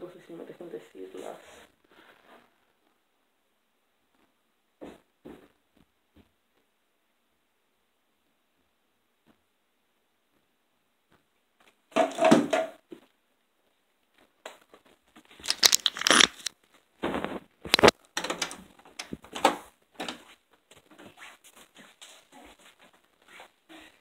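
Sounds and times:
device handling rustling: 15.4s - 16.6s, 17.7s - 19.5s.

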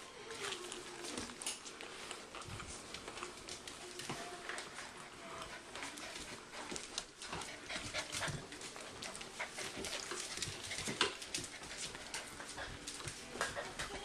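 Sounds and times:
puppy claws clicking on tiles: 5.8s - 14.0s.

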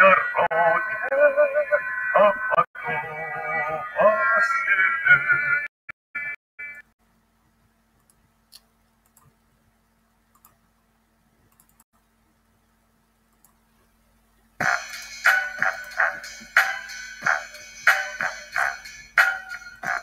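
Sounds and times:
faint clicks: 10.3s - 10.6s, 11.5s - 11.8s.

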